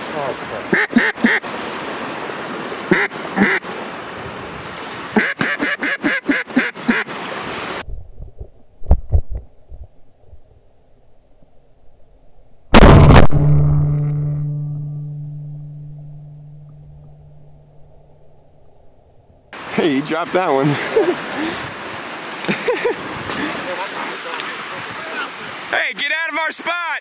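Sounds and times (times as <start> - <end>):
waves lapping: 0.0 - 7.8, 19.5 - 26.9
wind: 0.0 - 27.0
duck quacking: 0.7 - 1.4, 2.9 - 3.6, 5.2 - 7.1
loud shotgun shot: 12.8 - 14.3.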